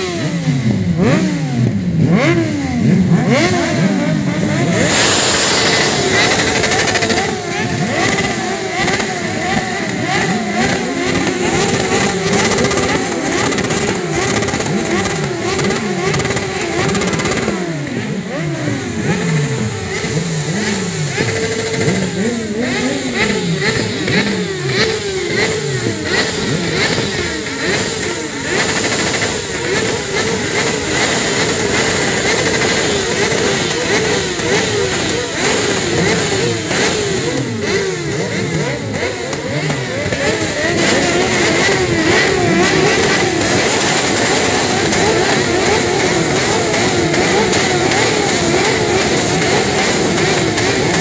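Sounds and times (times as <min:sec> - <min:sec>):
motorcycle engines revving: 0:00.0 - 0:51.0.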